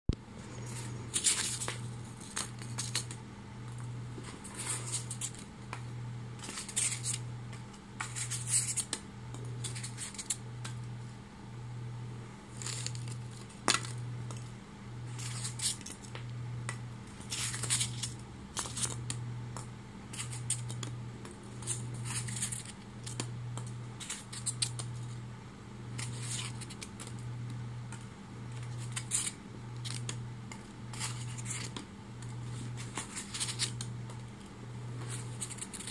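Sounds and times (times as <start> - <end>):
packing peanuts crackling in plastic: 12.5 - 13.9.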